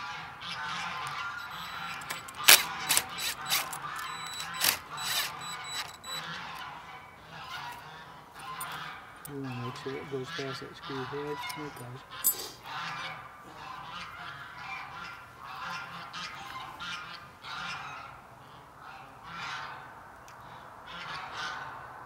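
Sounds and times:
geese honking: 0:00.0 - 0:19.8.

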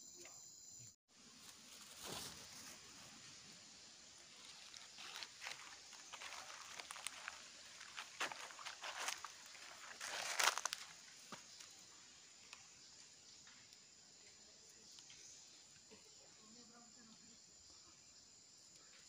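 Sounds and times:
footsteps in dry leaves: 0:01.3 - 0:03.2, 0:04.3 - 0:11.5.

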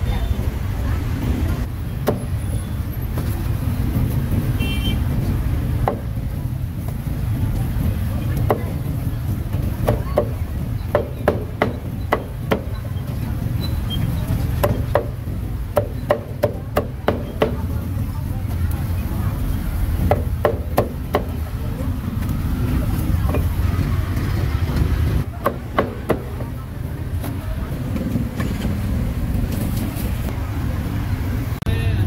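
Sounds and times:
street traffic rumble: 0:00.0 - 0:32.0
cleaver chopping on wooden block: 0:05.8 - 0:06.1, 0:09.8 - 0:12.7, 0:20.0 - 0:21.4.

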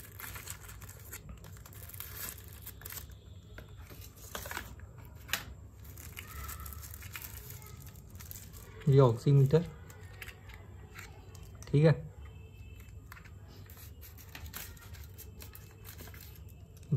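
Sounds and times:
plastic bag crinkling: 0:00.0 - 0:03.2, 0:05.7 - 0:11.7
paperboard packaging being opened: 0:00.0 - 0:11.7, 0:13.1 - 0:16.9.

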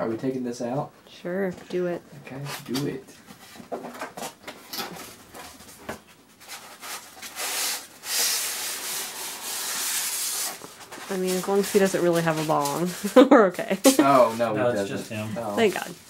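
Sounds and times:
cardboard packaging rustling: 0:02.7 - 0:13.2, 0:14.2 - 0:16.0
object scraping out of cardboard box: 0:06.4 - 0:13.2.

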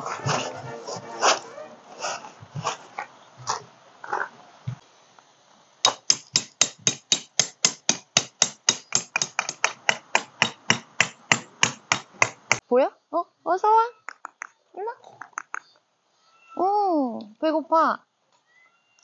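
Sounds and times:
hammer striking rapidly: 0:05.8 - 0:12.6.

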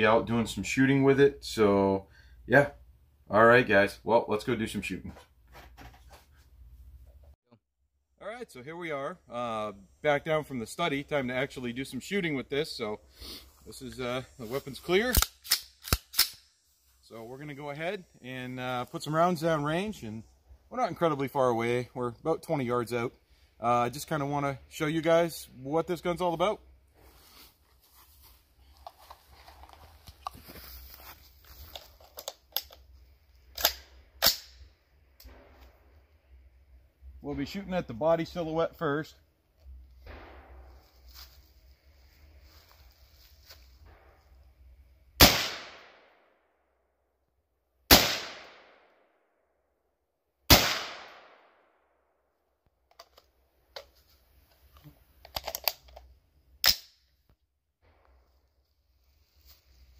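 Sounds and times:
rifle handling clicks and rustling: 0:15.0 - 0:16.4, 0:28.7 - 0:34.5, 0:52.8 - 0:57.0
rifle shots with echo: 0:45.2 - 0:46.1, 0:47.9 - 0:48.8, 0:50.5 - 0:51.6.

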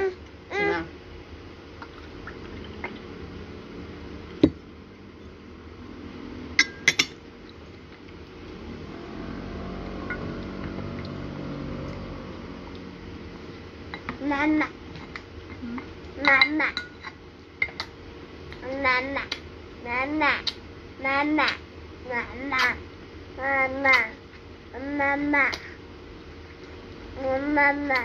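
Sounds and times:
tableware clinking: 0:06.6 - 0:07.2.

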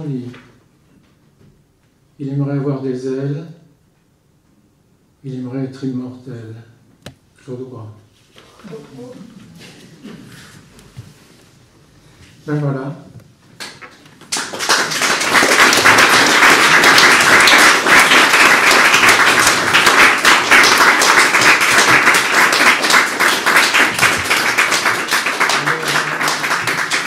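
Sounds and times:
audience applauding: 0:13.6 - 0:27.0.

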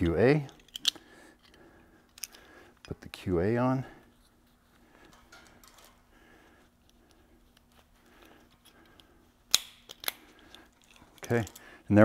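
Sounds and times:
rope and hardware rustling: 0:09.8 - 0:12.0.

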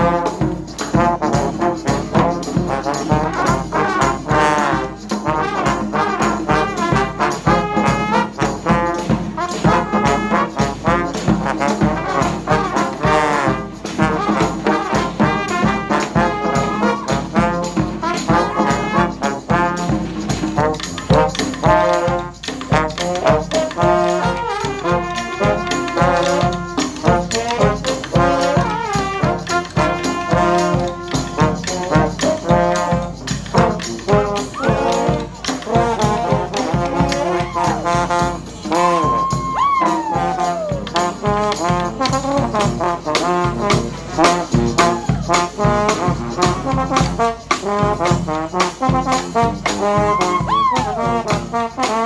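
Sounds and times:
steady drum beat: 0:00.0 - 0:52.0
trombones: 0:00.0 - 0:52.0
trumpets: 0:00.0 - 0:52.0.

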